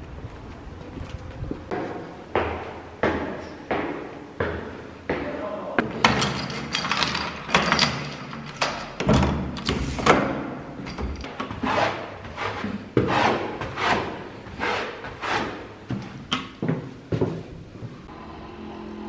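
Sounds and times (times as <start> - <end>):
key rattling in door lock: 6.0 - 9.7, 10.8 - 11.3.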